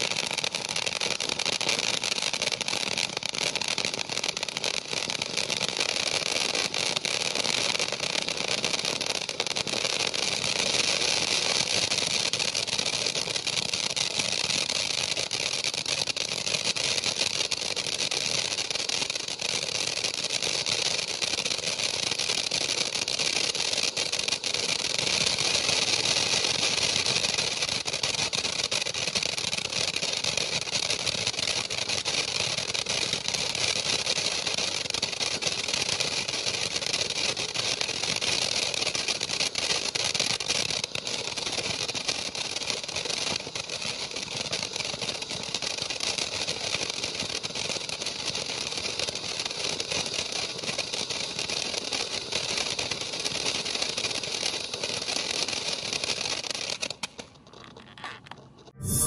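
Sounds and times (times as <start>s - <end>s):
firework fountain hissing: 0.0s - 57.8s
sparks crackling: 58.8s - 59.0s.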